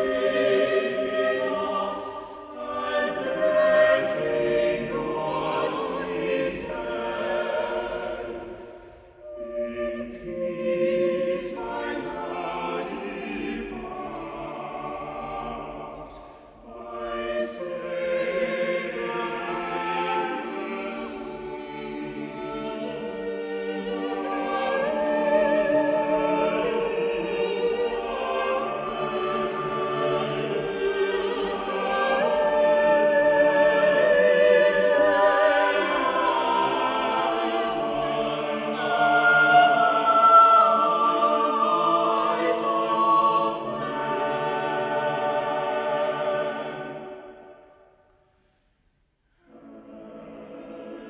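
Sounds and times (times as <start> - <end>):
mixed choir singing: 0.0 - 48.0, 49.4 - 51.0.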